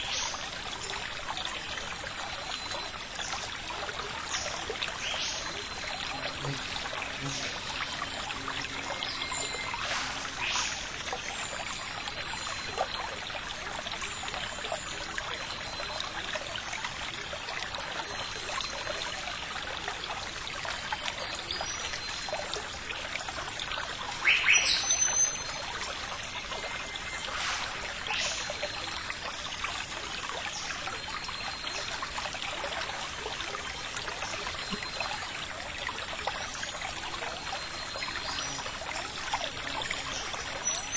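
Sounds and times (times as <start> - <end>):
rushing stream water: 0.0 - 40.9.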